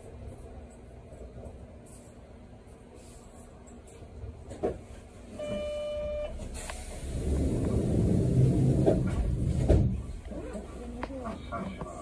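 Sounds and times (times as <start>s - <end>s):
steady beep: 5.4s - 6.4s
low rumble: 6.8s - 10.3s.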